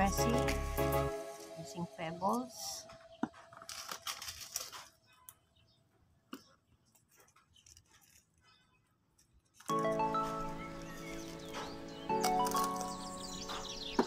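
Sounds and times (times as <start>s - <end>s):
pebbles rattling onto soil: 0.0s - 0.8s, 2.3s - 5.3s
music: 0.0s - 3.0s, 9.7s - 14.0s.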